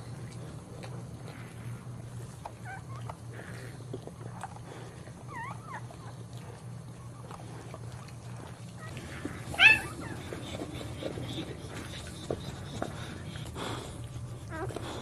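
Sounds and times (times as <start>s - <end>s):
dog licking wetly: 5.9s - 15.0s
puppy squeaking: 8.8s - 12.9s.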